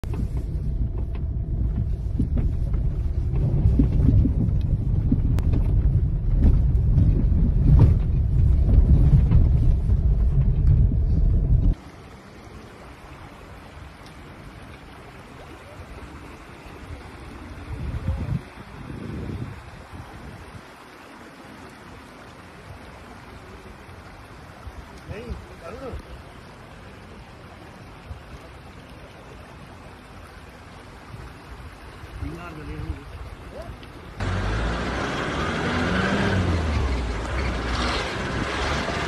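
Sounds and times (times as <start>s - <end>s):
car driving over gravel: 0.0s - 11.8s
river flowing over stones: 11.7s - 39.0s.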